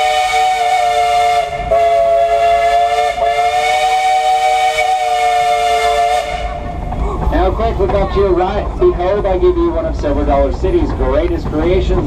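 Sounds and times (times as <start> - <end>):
steam locomotive whistle: 0.0 - 6.7.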